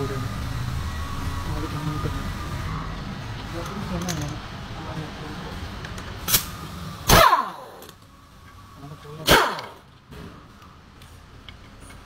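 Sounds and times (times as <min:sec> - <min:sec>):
pneumatic impact wrench bursts: 0:06.2 - 0:07.9, 0:09.2 - 0:09.9.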